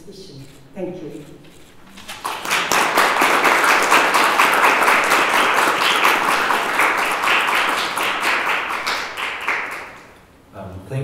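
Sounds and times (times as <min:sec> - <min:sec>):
audience applauding: 0:02.0 - 0:10.2.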